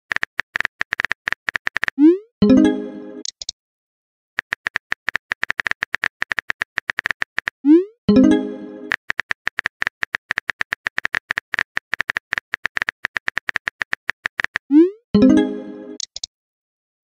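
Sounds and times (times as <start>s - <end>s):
phone keyboard typing clicks: 0.1s - 2.0s, 4.4s - 7.6s, 8.9s - 14.7s, 16.0s - 16.3s.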